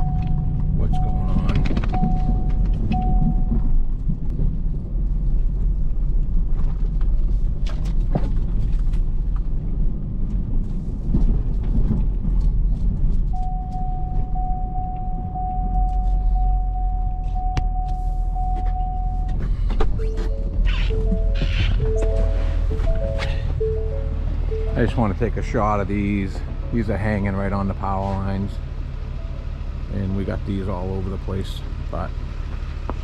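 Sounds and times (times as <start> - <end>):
knocks and clicks: 0.0 - 4.5, 11.1 - 25.0
truck engine and road rumble: 0.0 - 33.0
steady high tone: 13.3 - 30.4.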